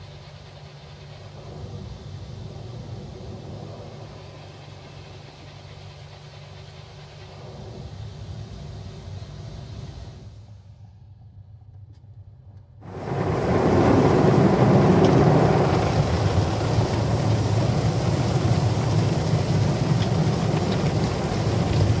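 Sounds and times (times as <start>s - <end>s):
water jets spraying on car: 12.9s - 22.0s.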